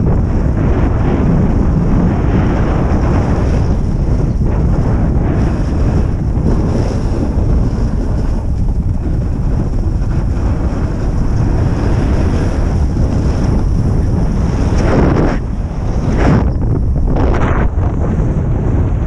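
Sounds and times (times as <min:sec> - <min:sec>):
wind rushing over microphone: 0:00.0 - 0:19.0.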